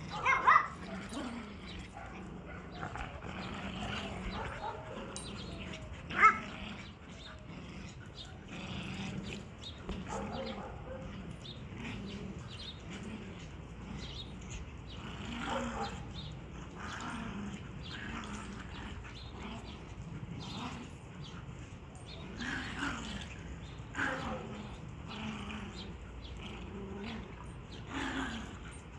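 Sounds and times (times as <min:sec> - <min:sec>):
dogs play growling: 0:00.0 - 0:28.9
dog barking: 0:00.1 - 0:00.8, 0:04.4 - 0:04.9, 0:10.1 - 0:11.0.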